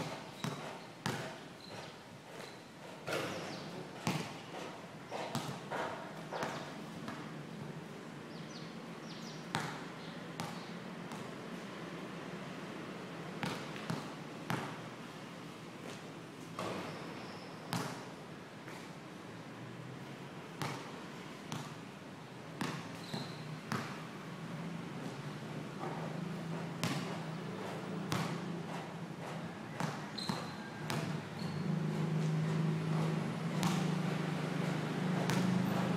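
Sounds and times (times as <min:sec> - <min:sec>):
basketball bouncing on concrete: 0:00.0 - 0:04.6, 0:05.2 - 0:07.2, 0:09.5 - 0:11.3, 0:13.4 - 0:14.8, 0:17.7 - 0:18.1, 0:22.6 - 0:24.0, 0:25.8 - 0:35.9.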